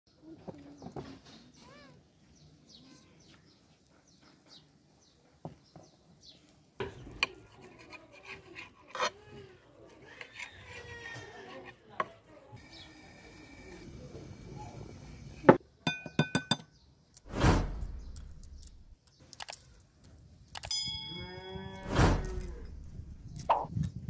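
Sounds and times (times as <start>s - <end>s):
light clicks and clinks: 19.0s - 21.2s.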